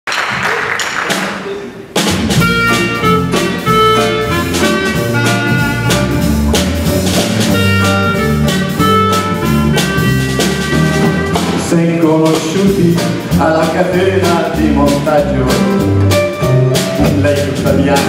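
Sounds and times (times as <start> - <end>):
jazz band playing: 1.9 - 18.0
clarinet melody: 2.4 - 11.7.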